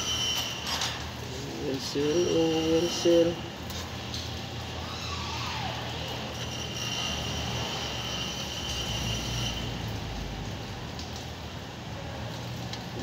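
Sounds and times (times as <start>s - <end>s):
thin high whine: 0.0s - 1.0s, 2.0s - 3.5s.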